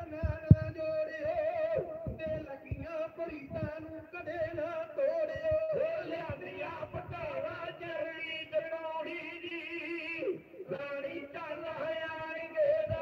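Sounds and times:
men singing devotional song: 0.0s - 13.0s
sharp low thump: 0.2s - 0.8s.

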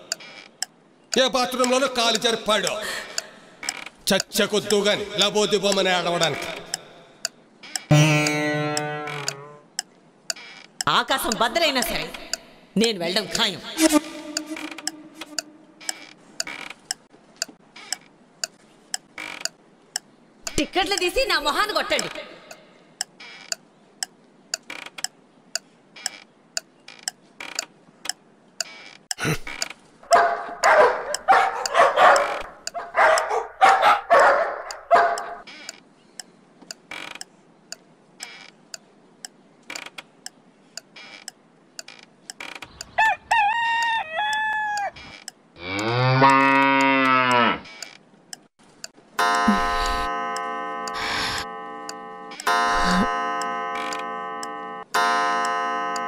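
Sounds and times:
clock ticking: 0.0s - 56.0s
rooster crowing: 42.9s - 45.0s
cow mooing: 45.6s - 47.7s.

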